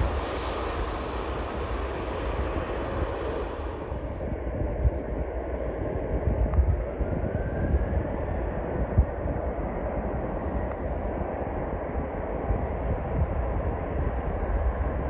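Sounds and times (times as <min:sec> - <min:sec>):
airliner engines rumbling: 0:00.0 - 0:15.0
wind thumps on microphone: 0:02.2 - 0:09.5.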